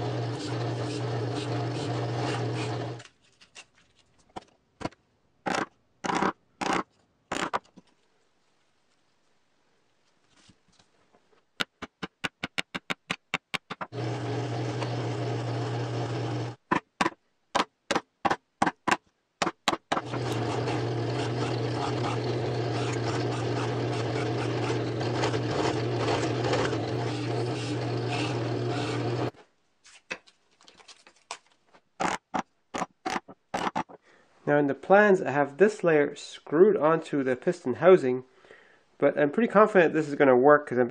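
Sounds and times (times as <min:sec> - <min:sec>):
drill press boring into plywood: 0:00.0 - 0:03.0, 0:13.8 - 0:16.6, 0:19.9 - 0:29.3.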